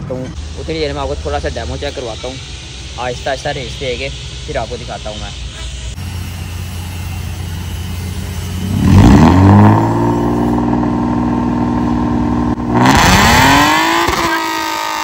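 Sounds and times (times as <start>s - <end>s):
car engine idling and revving: 5.4s - 15.0s.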